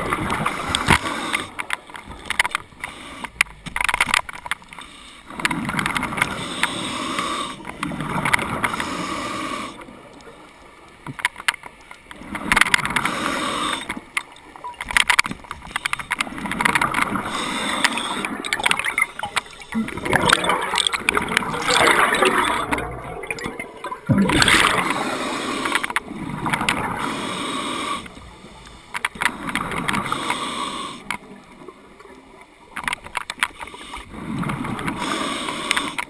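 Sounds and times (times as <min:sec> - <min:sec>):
underwater regulator breathing: 0:00.3 - 0:03.6, 0:04.5 - 0:10.0, 0:12.2 - 0:14.4, 0:15.5 - 0:31.4, 0:33.4 - 0:36.0
sharp clicks: 0:13.7 - 0:25.0
exhaled bubbles gurgling: 0:16.2 - 0:27.1.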